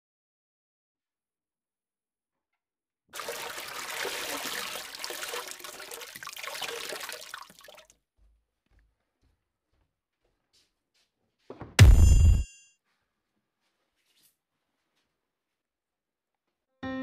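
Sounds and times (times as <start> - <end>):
rush of water: 3.2 - 7.8.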